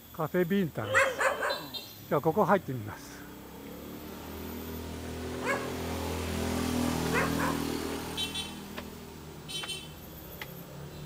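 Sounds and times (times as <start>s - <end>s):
dog barking: 0.8s - 1.8s, 5.4s - 5.9s, 7.1s - 7.7s
vehicle engine passing by: 2.8s - 11.0s.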